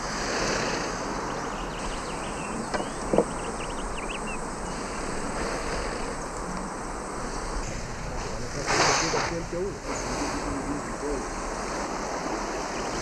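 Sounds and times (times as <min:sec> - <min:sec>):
river water rushing: 0:00.0 - 0:13.0.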